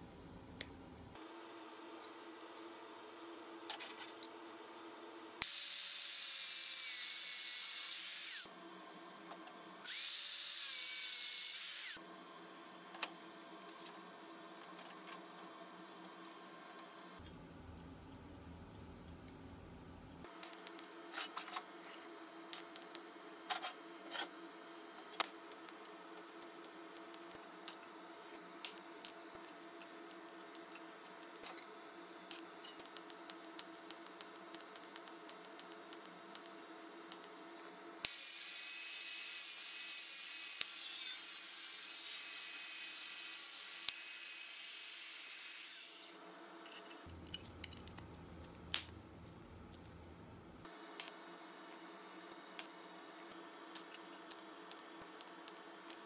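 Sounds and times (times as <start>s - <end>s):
welding arc hissing: 5.4s - 8.5s, 9.9s - 12.0s, 38.0s - 46.2s.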